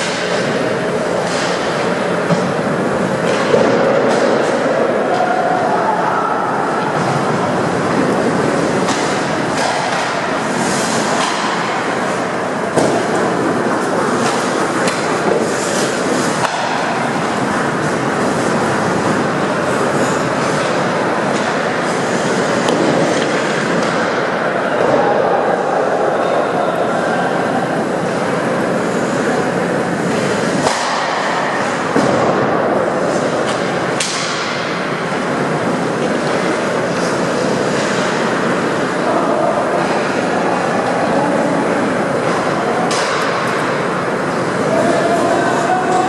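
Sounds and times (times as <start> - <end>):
rink ambient noise: 0.0 - 46.0
skates scraping on ice: 7.8 - 11.7, 12.8 - 24.2
hockey stick cracks: 33.4 - 34.8.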